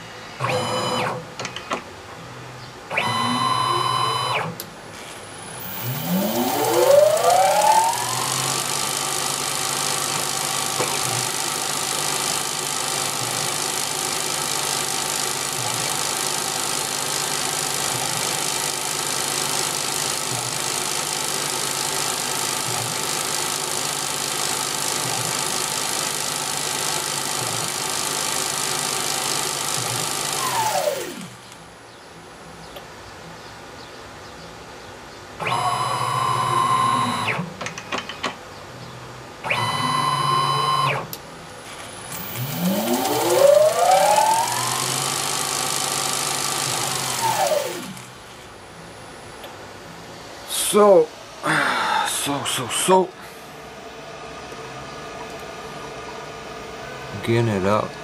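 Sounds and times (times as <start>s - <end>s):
brief motor whir: 0.0s - 1.8s, 2.9s - 31.6s, 35.4s - 37.6s, 39.4s - 48.4s
lathe spindle motor whine: 5.3s - 31.6s, 35.4s - 37.4s, 39.5s - 41.1s, 41.9s - 48.1s.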